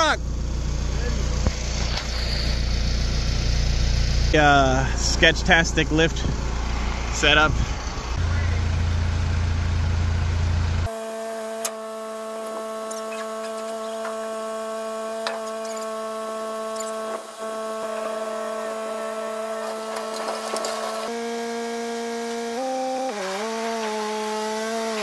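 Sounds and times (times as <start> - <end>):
sustained drone music: 17.6 - 21.1.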